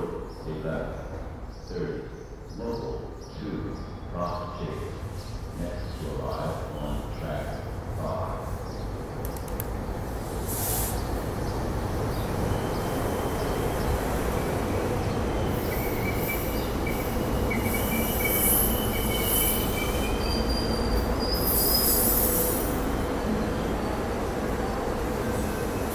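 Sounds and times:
rumble of passing train cars: 0.0 - 25.9
high train wheel squeals: 12.3 - 23.9.

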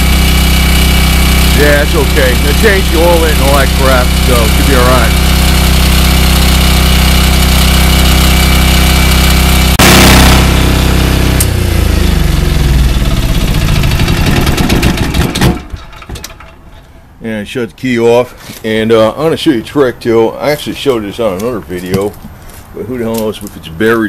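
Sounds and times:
engine winding down: 0.0 - 16.9
diesel generator running: 0.0 - 24.0.

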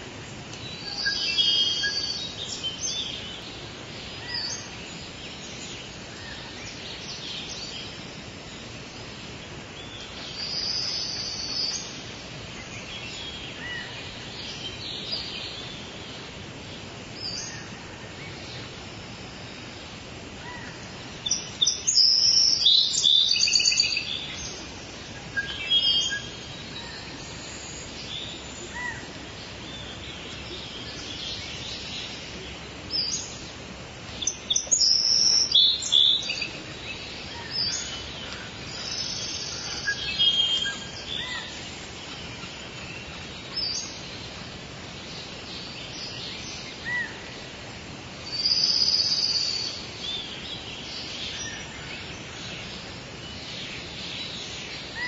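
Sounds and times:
steady background hiss: 0.0 - 55.0.

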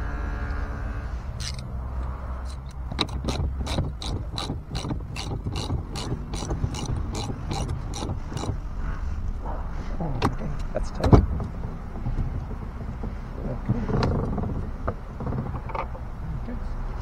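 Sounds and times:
ratchet wrench clicking: 1.4 - 8.6.

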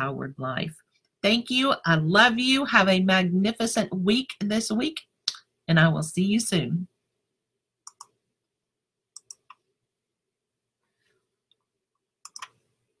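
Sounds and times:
computer mouse clicking: 7.8 - 8.2, 9.2 - 9.6, 12.2 - 12.6.

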